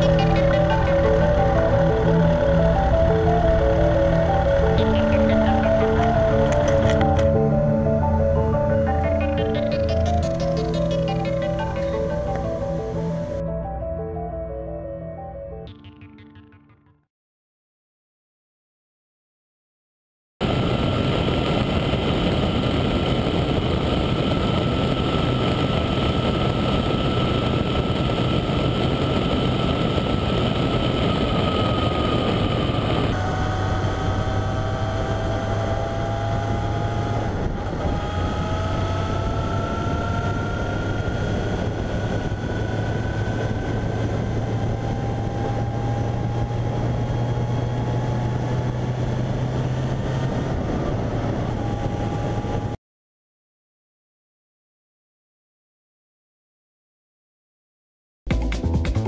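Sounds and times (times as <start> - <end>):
road and wind noise: 0.0 - 13.8, 20.4 - 52.8
vehicle engine drone: 0.0 - 16.4, 20.4 - 52.8.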